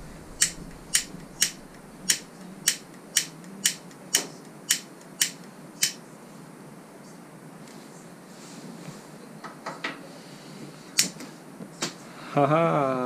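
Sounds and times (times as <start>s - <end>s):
gas hob igniter clicking: 0.0s - 6.0s.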